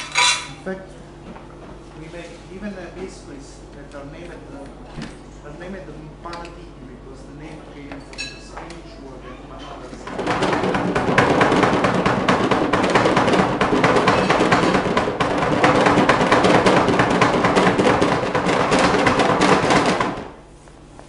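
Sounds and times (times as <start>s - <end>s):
metal tins rattling on wood: 0.0s - 0.6s.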